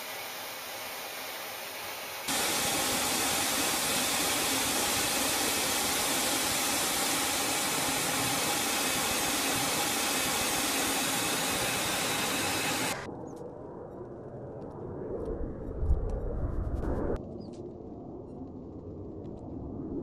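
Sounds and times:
jet engine roaring: 0:02.3 - 0:17.2.

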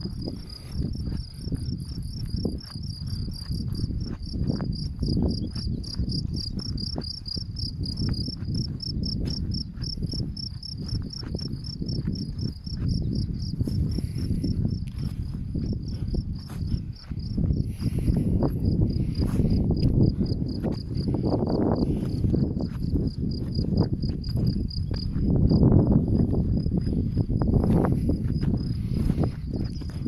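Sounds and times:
cricket chirping: 0:00.0 - 0:30.0.

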